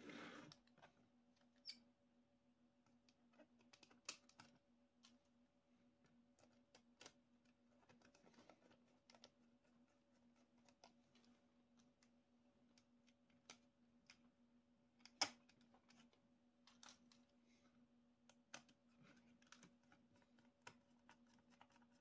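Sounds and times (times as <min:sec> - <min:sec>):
faint steady hum: 0:00.0 - 0:22.0
small screws and panels clicking: 0:03.1 - 0:05.2.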